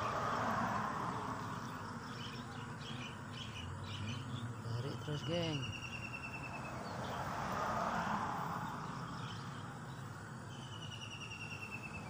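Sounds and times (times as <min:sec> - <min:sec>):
vehicle passing: 0:00.0 - 0:12.0
bird trilling: 0:05.0 - 0:06.7.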